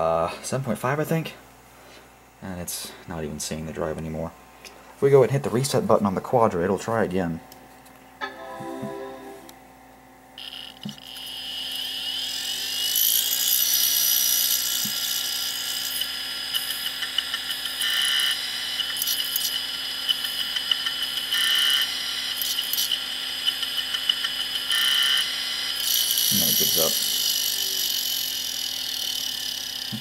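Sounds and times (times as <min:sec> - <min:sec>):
hard drive whining: 0:15.8 - 0:30.0.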